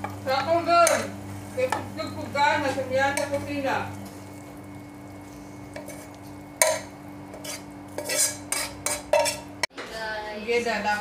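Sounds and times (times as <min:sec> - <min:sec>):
steady low hum: 0:00.0 - 0:09.7
metal spoon scraping a wok: 0:05.6 - 0:09.5.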